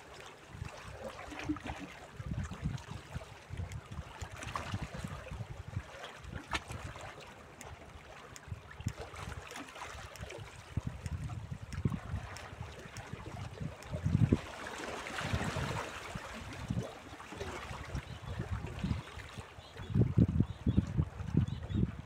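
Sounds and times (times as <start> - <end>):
wind buffeting microphone: 10.6 - 14.5, 17.7 - 19.1, 19.8 - 22.0.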